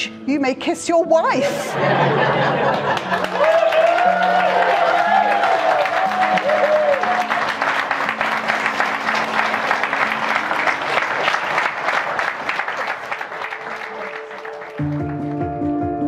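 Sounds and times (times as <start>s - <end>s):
quiet instrumental music: 0.0s - 16.0s
crowd applauding: 1.9s - 15.8s.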